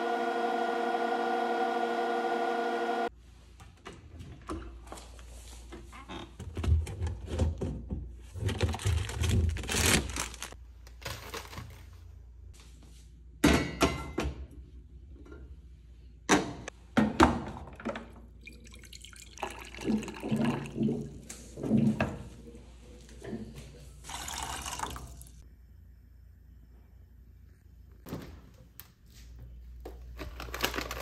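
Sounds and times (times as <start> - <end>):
water running into mug: 18.4 - 21.2, 24.1 - 25.4.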